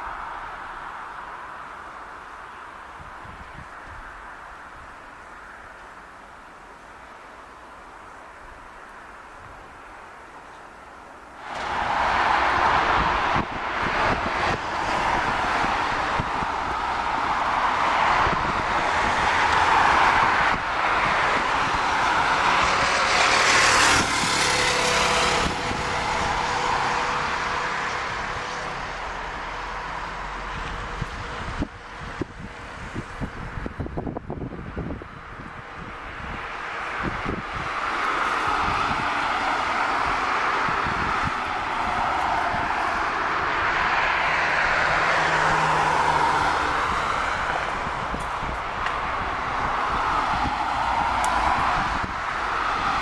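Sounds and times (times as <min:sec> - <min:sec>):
jet engines roaring: 0:11.4 - 0:33.2, 0:36.0 - 0:53.0.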